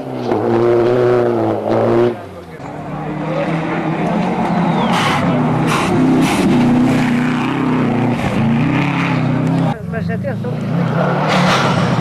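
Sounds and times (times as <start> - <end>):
rally car engine revving: 0.0 - 12.0.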